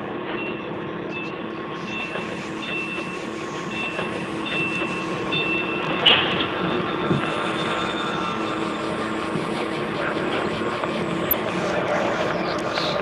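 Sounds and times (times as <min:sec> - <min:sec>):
electronic spaceship hum: 0:00.0 - 0:13.0
short high electronic tones: 0:01.1 - 0:11.5
loud hiss: 0:01.8 - 0:06.2.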